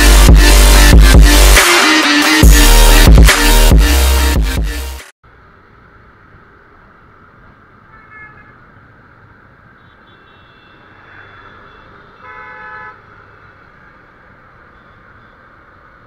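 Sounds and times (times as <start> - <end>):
road and wind noise: 5.2 - 16.0
vehicle horns honking: 7.9 - 8.6, 9.8 - 13.5.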